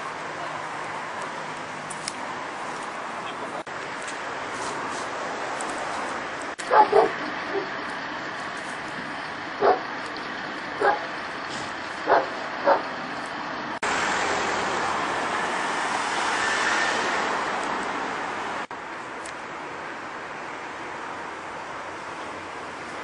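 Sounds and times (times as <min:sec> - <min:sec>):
street traffic noise: 0:00.0 - 0:23.0
dog barking: 0:06.6 - 0:07.8, 0:09.6 - 0:09.9, 0:10.8 - 0:11.1, 0:12.0 - 0:12.9.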